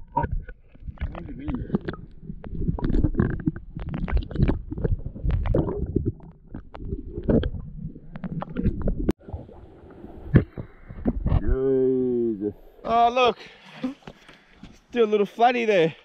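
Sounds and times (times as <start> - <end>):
underwater water sloshing: 0.0 - 11.6.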